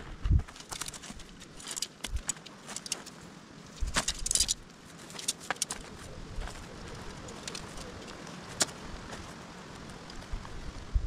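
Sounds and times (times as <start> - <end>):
tent parts clinking: 0.6 - 9.3.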